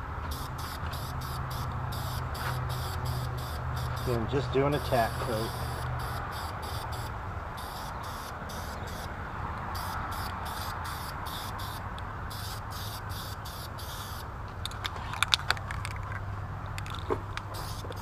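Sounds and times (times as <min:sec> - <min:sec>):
spray paint can hissing: 0:00.3 - 0:04.2, 0:04.8 - 0:09.1, 0:09.7 - 0:14.2, 0:17.4 - 0:18.0.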